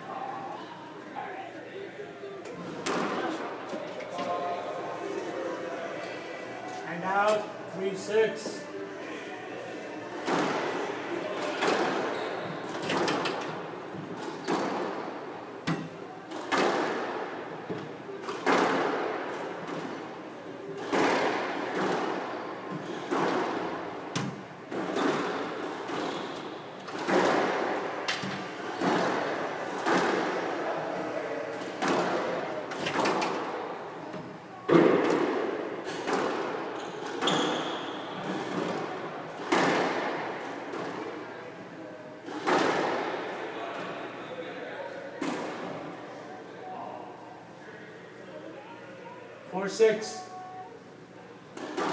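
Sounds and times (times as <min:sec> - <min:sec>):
squash ball hitting rackets and walls: 0:02.6 - 0:03.4, 0:10.2 - 0:20.1, 0:20.8 - 0:30.5, 0:31.5 - 0:33.6, 0:34.7 - 0:41.2, 0:42.2 - 0:43.3, 0:51.5 - 0:51.9.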